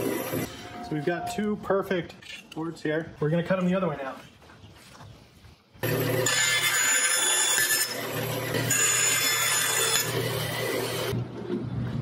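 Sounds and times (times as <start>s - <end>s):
saw blade whining through wood: 0.0s - 1.3s, 5.8s - 11.2s
band saw motor hum: 5.8s - 11.2s.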